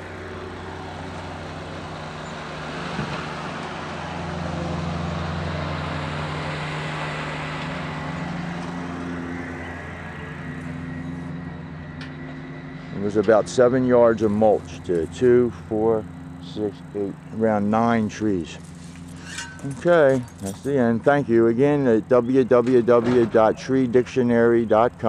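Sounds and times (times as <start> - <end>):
car passing by: 0.0 - 14.8.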